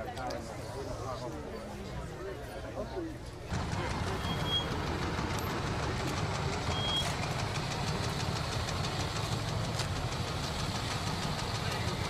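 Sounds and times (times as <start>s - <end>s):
car engine idling with ticking: 3.5s - 12.0s.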